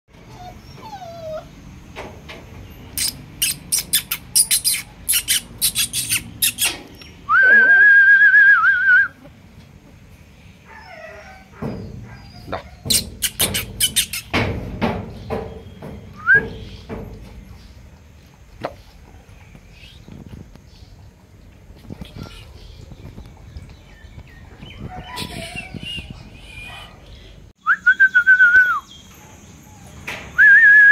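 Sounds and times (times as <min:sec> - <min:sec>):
sharp clicking sounds: 0:12.9 - 0:15.5
high whistle: 0:27.6 - 0:28.9, 0:30.4 - 0:30.9.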